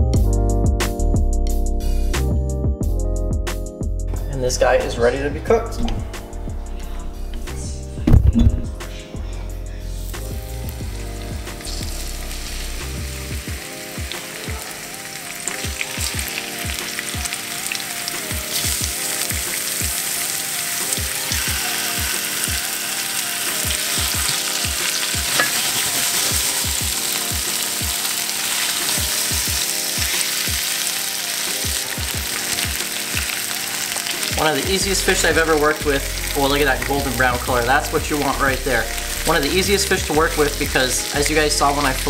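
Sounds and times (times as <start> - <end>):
fish fillets sizzling in oil: 9.9 - 42.0.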